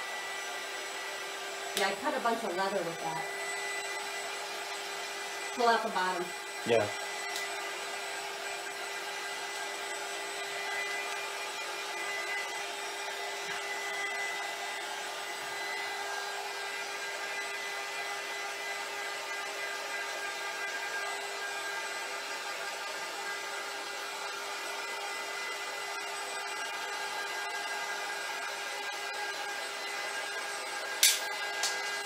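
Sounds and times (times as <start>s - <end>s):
heat gun blowing: 0.0s - 19.8s.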